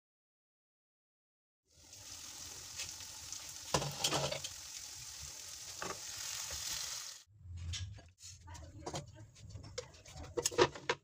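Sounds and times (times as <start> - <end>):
food sizzling in a pan: 1.7 - 7.3
spoon stirring and scraping: 7.7 - 11.0.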